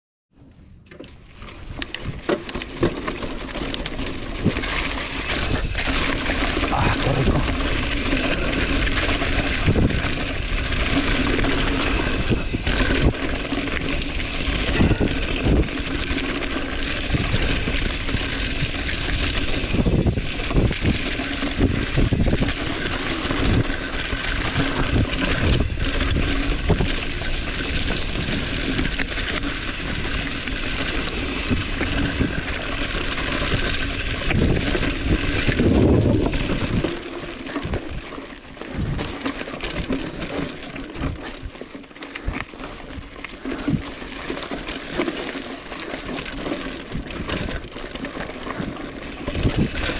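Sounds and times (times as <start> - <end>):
bike rattling over bumps: 0.4 - 49.9
wind on microphone: 5.4 - 8.0, 8.8 - 13.3, 14.5 - 15.9, 17.0 - 37.0, 49.0 - 49.9.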